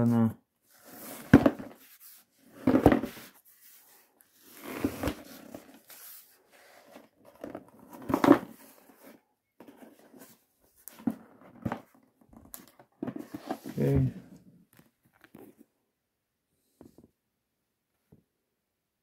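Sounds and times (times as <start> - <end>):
cardboard box rubbing and scraping: 0.8 - 7.1.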